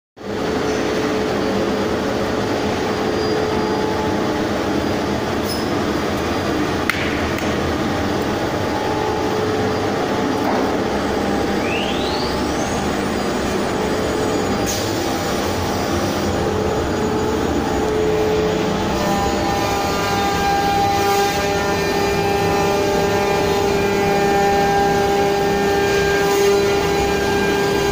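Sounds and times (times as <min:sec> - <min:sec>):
machining center humming: 0:00.2 - 0:27.9
short rising whine: 0:00.8 - 0:06.9, 0:07.5 - 0:19.6.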